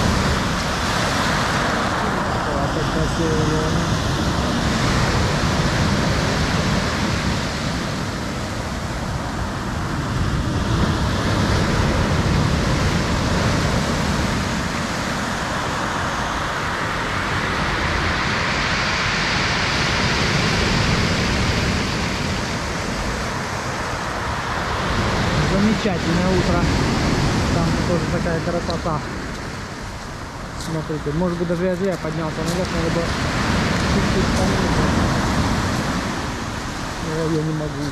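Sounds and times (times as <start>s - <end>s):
surf washing up pebble beach: 0.0s - 37.9s.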